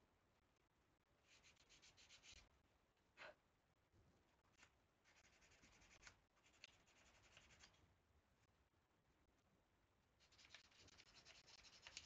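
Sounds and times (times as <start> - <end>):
sandpaper sanding wooden stick: 10.2 - 12.0.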